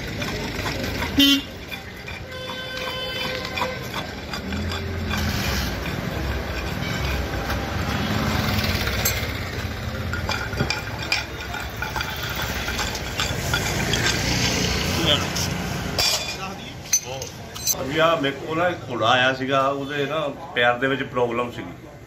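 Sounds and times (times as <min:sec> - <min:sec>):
engine idling: 0:00.0 - 0:14.2
hand tools clicking and scraping: 0:00.0 - 0:17.8.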